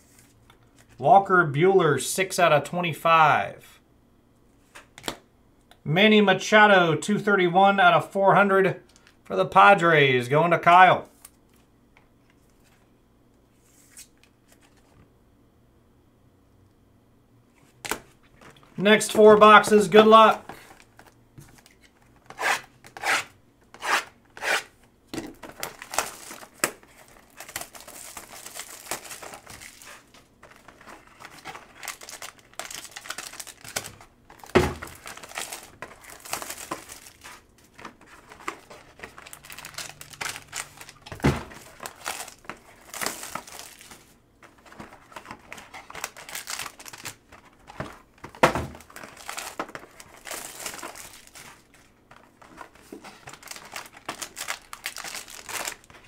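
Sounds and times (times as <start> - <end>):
foil pack crinkling: 25.3 - 56.0.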